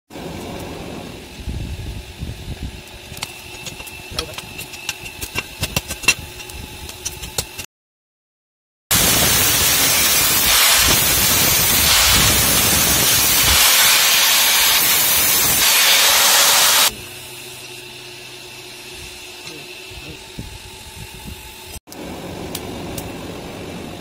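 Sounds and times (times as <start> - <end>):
angle grinder cutting steel: 9.0 - 20.9.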